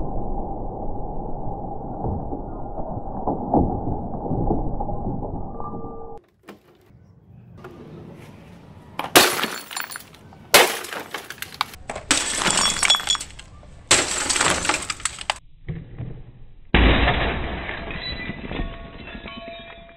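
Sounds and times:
fragments clinking: 9.0s - 15.4s
glass shattering: 9.1s - 15.4s, 16.8s - 19.9s.

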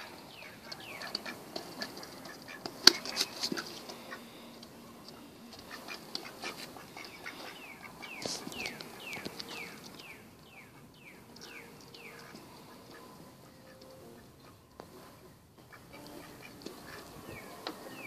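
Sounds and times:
bird chirping: 0.0s - 18.0s
rustling: 0.0s - 18.0s
scuffling and taps: 8.1s - 10.0s.

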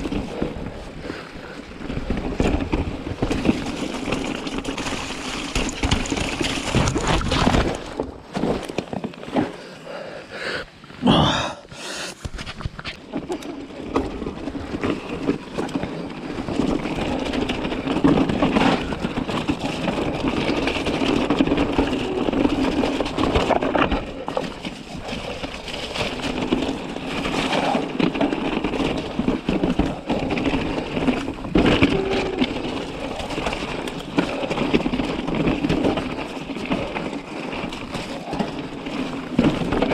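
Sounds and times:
tyres crunching over stones: 0.0s - 9.7s, 12.2s - 39.9s
bike rattling and knocking: 0.0s - 9.9s, 12.2s - 39.9s.

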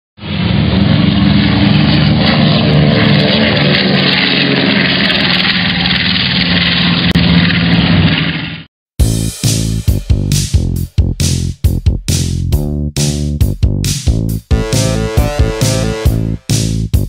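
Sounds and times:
propeller aircraft engine droning: 0.2s - 8.7s, 14.5s - 16.9s.

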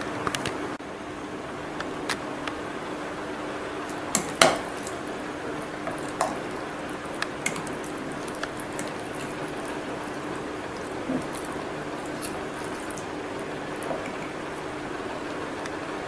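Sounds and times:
spoon stirring oats: 3.9s - 15.6s.

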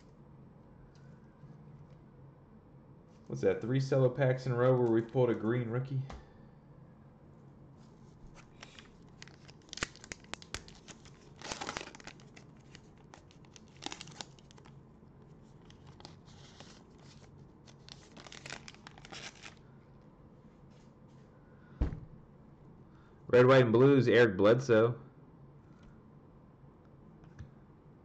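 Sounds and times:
wrapper crinkling: 8.3s - 19.6s
wrapper ripping: 8.4s - 14.8s, 15.5s - 19.6s.

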